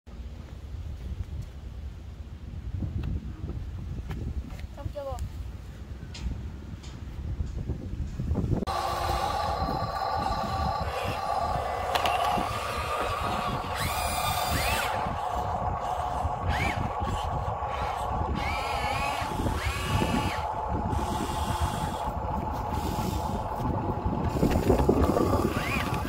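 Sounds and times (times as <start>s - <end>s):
small electric motors whining: 8.6s - 26.0s.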